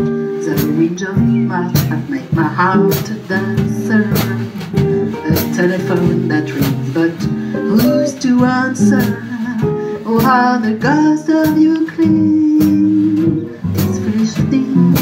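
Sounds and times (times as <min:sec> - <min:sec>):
light steady beat: 0:00.0 - 0:15.0.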